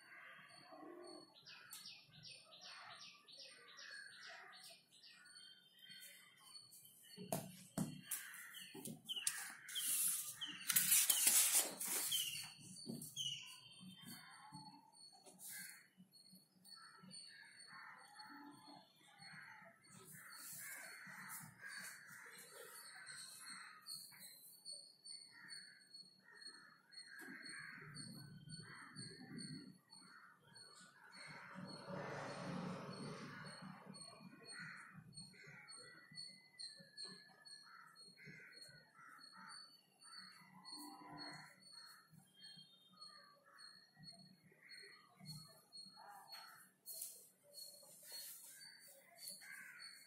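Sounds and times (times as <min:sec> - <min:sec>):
bird chirping: 0:00.0 - 0:50.0
high-pitched bird chirps: 0:04.6 - 0:15.8
distant crows cawing: 0:07.2 - 0:10.6, 0:25.2 - 0:32.3, 0:33.3 - 0:42.0, 0:48.1 - 0:50.0
paper rustling: 0:08.1 - 0:12.6.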